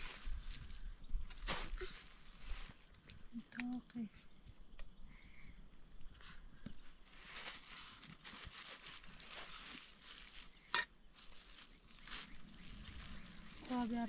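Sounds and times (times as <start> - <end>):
plastic bag crinkling: 7.1 - 14.0.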